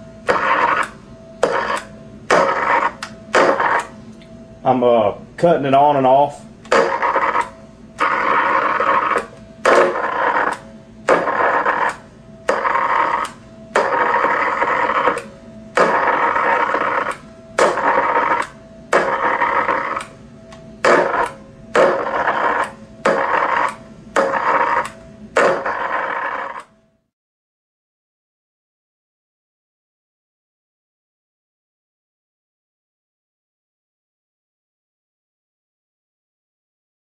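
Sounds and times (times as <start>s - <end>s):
high-voltage electrical buzzing: 0.0s - 4.0s, 6.3s - 26.7s.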